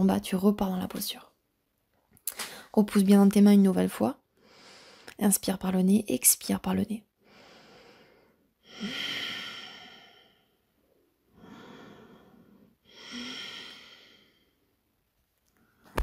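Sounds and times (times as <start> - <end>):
woman breathing through nose: 4.4 - 5.2, 7.2 - 10.6, 11.3 - 14.6.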